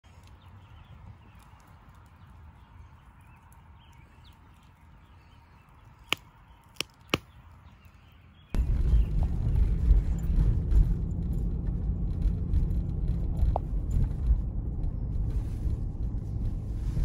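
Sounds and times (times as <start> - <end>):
campfire burning: 0.1 - 7.4
burning wood popping: 6.0 - 7.4.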